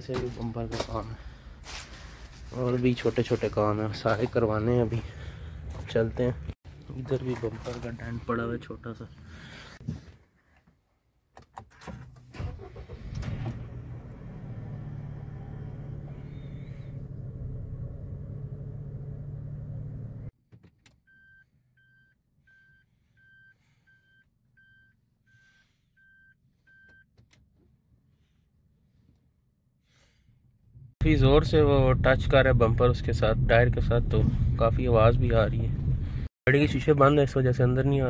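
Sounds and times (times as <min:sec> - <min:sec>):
short electronic car beeps: 0:21.1 - 0:25.4, 0:26.0 - 0:27.1.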